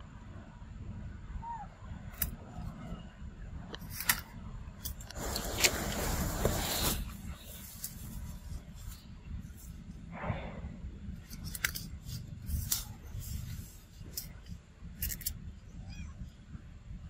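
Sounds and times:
low rumble: 0:04.3 - 0:17.0
leaves rustling: 0:05.0 - 0:09.7.

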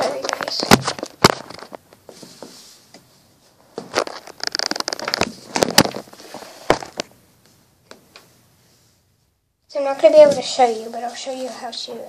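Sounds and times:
diaper rustling and crinkling: 0:03.9 - 0:07.0.

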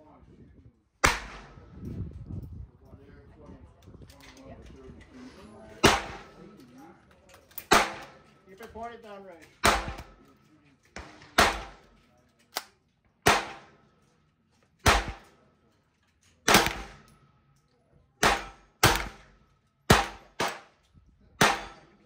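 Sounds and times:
rifle shots: 0:01.0 - 0:01.7, 0:05.8 - 0:06.4, 0:07.6 - 0:08.3, 0:09.6 - 0:10.2, 0:11.0 - 0:11.9, 0:13.2 - 0:13.8, 0:14.8 - 0:15.3, 0:16.5 - 0:17.2, 0:18.2 - 0:20.7, 0:21.4 - 0:22.0.

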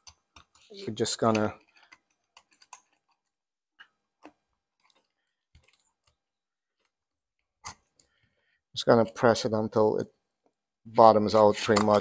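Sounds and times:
faint metal clicks and taps: 0:00.0 - 0:07.0.

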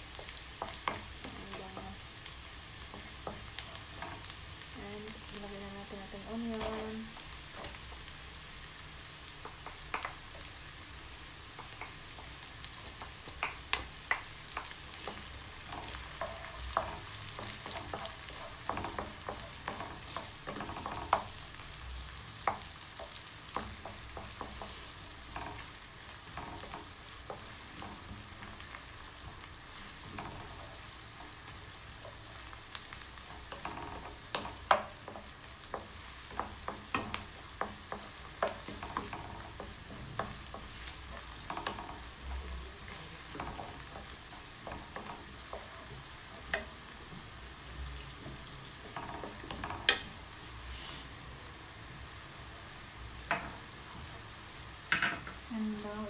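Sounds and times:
onions sizzling in a wok: 0:00.0 - 0:56.0
wooden spatula scraping a pan: 0:14.6 - 0:51.2.

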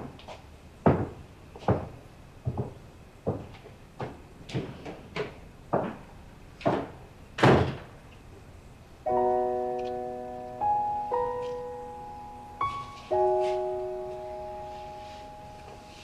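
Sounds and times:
door shutting with thud: 0:06.7 - 0:07.9
piano chords: 0:09.0 - 0:16.0
footsteps on hard floor: 0:12.6 - 0:16.0.

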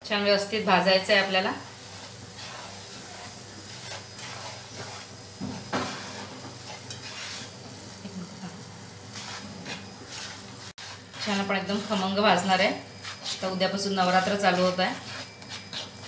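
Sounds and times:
flour sizzling in hot fat: 0:00.0 - 0:16.0
plastic spatula scraping pan: 0:01.9 - 0:07.6, 0:09.1 - 0:16.0.

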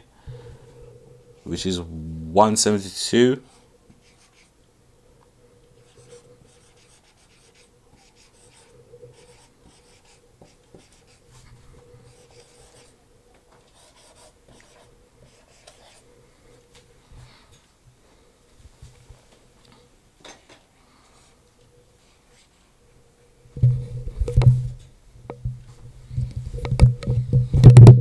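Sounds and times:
marker squeaking on whiteboard: 0:05.8 - 0:11.5, 0:12.1 - 0:12.9, 0:13.7 - 0:16.0.

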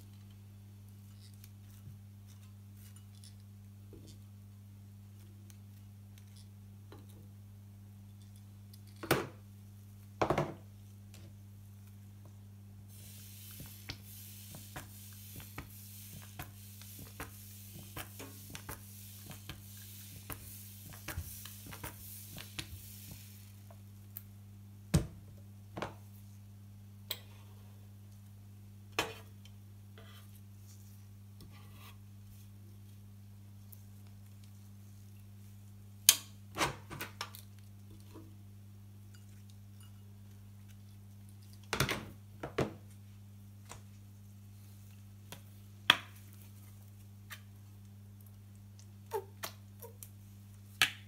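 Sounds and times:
batter sizzling on pan: 0:12.9 - 0:24.3.

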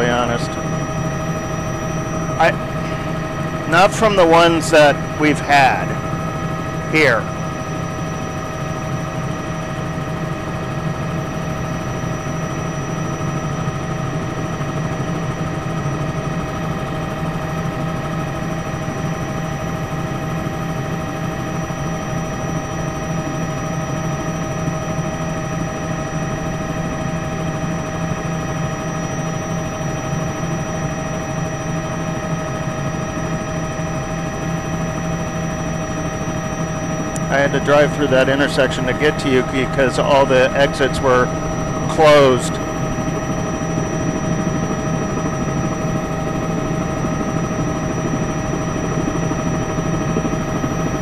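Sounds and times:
high-pitched whines: 0:00.0 - 0:13.5, 0:28.6 - 0:50.7
helicopter engine and rotor drone: 0:00.0 - 0:51.0.

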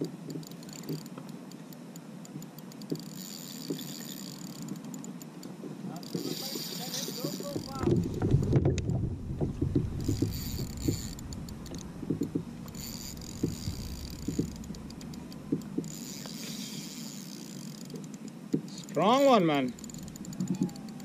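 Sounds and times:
fishing reel whirring: 0:00.0 - 0:08.4, 0:09.7 - 0:21.0
water slapping against kayak hull: 0:07.2 - 0:16.0.

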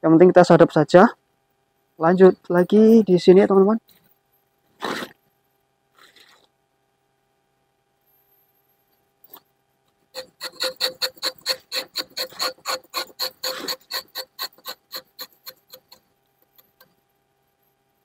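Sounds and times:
knife scraping tree bark: 0:10.2 - 0:16.9.

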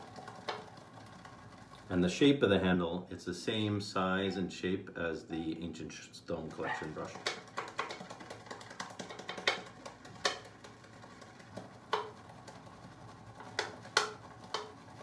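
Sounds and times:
shaving brush scrubbing in bowl: 0:06.3 - 0:08.4
brush handle knocking bowl: 0:11.5 - 0:12.2, 0:13.4 - 0:14.8.

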